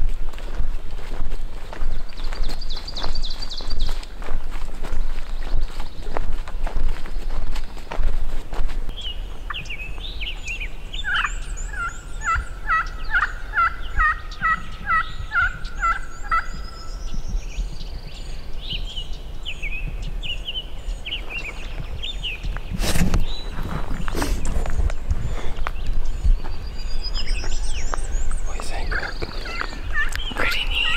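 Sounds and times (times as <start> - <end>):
birds whistling and chirping: 1.8 - 4.0, 8.9 - 30.9.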